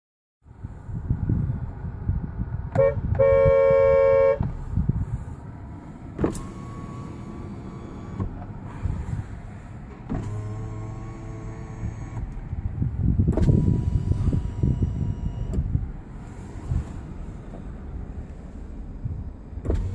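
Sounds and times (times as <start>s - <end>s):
car horn honking: 2.7s - 4.7s
electric window motor whine: 6.1s - 12.5s, 13.3s - 15.8s, 19.6s - 19.9s
window motor click: 6.2s - 8.6s.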